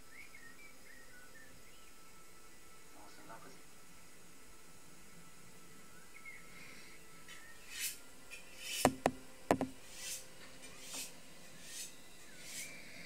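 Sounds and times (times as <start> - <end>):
faint hissing: 0.7 - 13.0
sharp knocks: 8.8 - 9.8.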